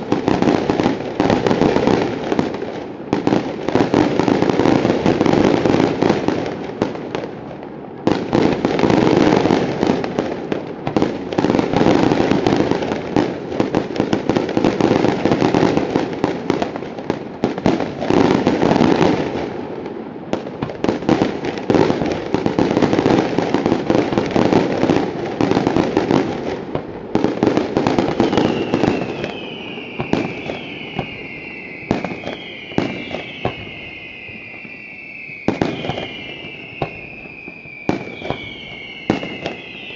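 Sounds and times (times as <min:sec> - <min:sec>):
firework bangs and crackling: 0:00.0 - 0:39.9
falling firework whistles: 0:27.2 - 0:39.9.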